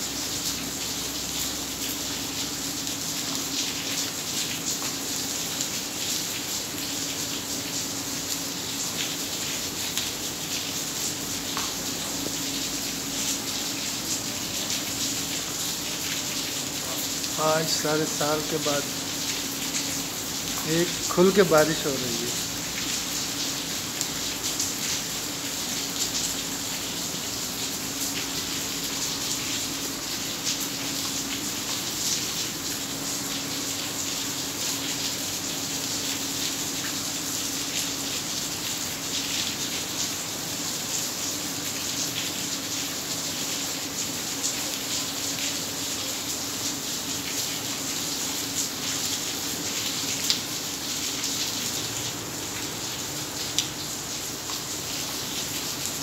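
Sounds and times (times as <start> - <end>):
heavy rain splashing into water: 0.0 - 56.0.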